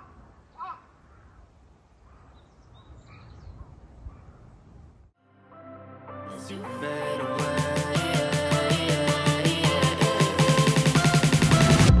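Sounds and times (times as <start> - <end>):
crow cawing: 0.0 - 2.5
faint bird chirps: 0.0 - 4.6.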